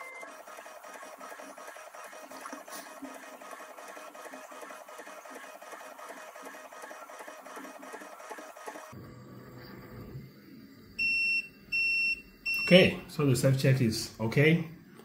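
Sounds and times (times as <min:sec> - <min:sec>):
printer stepper motors whirring: 0:00.0 - 0:09.0.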